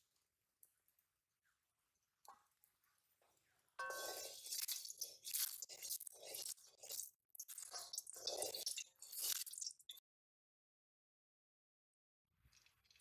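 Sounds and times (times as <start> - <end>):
wooden spatula scraping a pan: 3.8 - 9.7.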